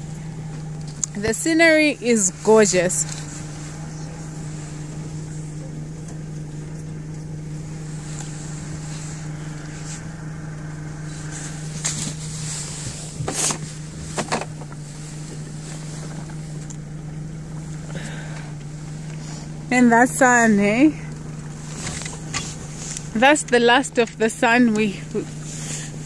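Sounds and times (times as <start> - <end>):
rushes of noise: 0.0 - 19.7
outboard motor droning: 0.0 - 26.0.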